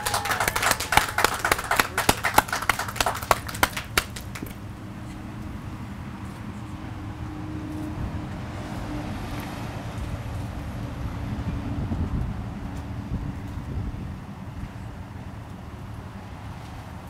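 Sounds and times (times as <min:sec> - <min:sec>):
applause: 0:00.0 - 0:04.6
low outdoor rumble: 0:00.0 - 0:17.0.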